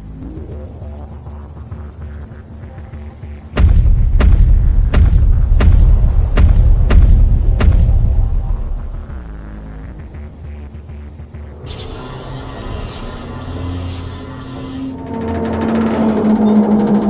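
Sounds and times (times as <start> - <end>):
deep low rumble: 0.0 - 17.0
heavy booming thuds: 3.6 - 10.1.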